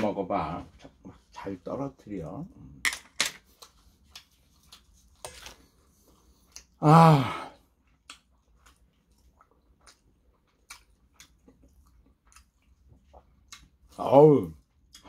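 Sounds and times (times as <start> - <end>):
man sighing: 6.8 - 7.6
eating clicks and smacks: 7.9 - 13.9.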